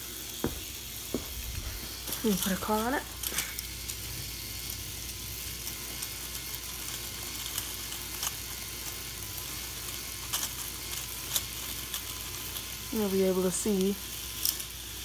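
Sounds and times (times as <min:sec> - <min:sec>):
motor-driven lift chain whirring: 0:00.0 - 0:15.0.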